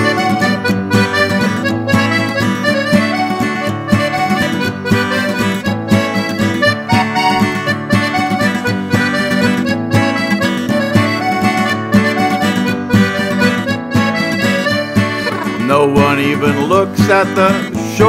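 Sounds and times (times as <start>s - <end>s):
accordion melody: 0.0s - 18.0s
acoustic guitar strumming: 0.0s - 18.0s.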